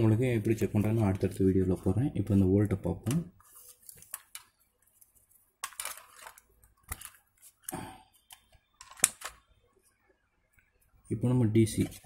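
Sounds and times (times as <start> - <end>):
cable rustling in fingers: 3.2 - 10.0.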